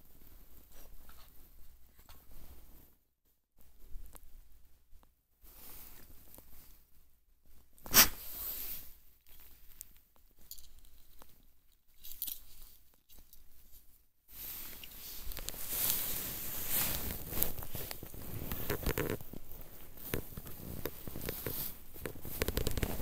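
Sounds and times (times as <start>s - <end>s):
rustling and scuffing: 13.6s - 23.0s.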